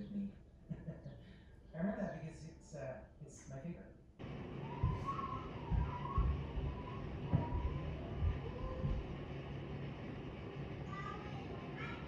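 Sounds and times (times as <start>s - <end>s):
hummingbird wings humming: 4.2s - 10.8s
low buffeting thumps: 4.2s - 10.8s.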